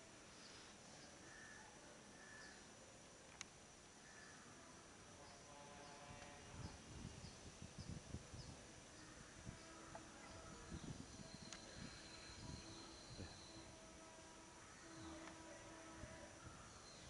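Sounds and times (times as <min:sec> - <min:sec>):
faint high chirp: 0:09.6 - 0:13.7.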